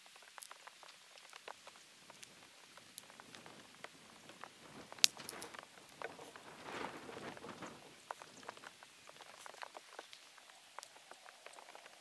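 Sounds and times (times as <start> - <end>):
campfire crackling and popping: 0.0 - 12.0
sharp snap of burning wood: 0.3 - 7.4.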